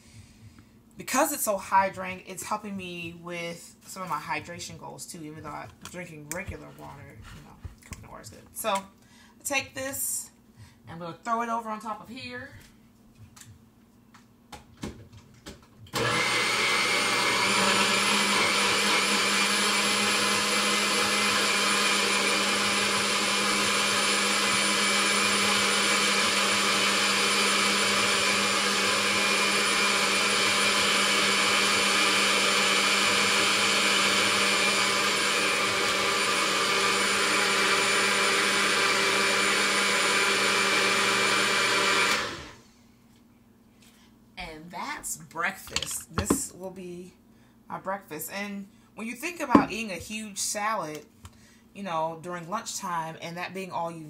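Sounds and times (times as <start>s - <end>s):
blender motor running: 15.9s - 42.6s.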